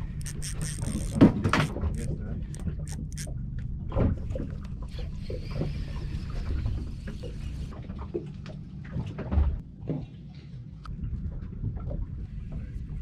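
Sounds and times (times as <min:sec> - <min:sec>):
low boat rumble: 0:00.0 - 0:09.9.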